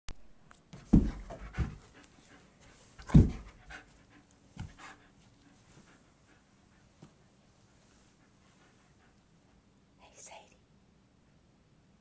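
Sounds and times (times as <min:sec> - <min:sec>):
dog panting: 0:00.9 - 0:09.7.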